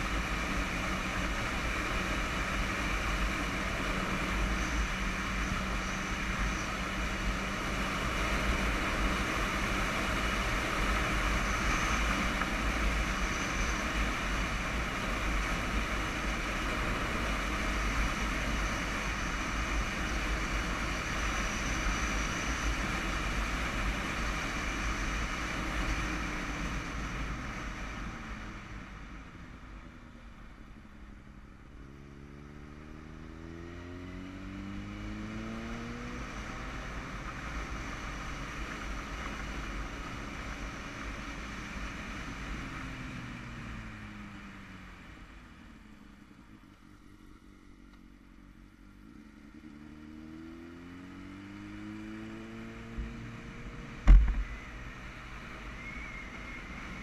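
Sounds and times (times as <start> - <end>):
motorcycle engine accelerating: 31.2 - 57.0.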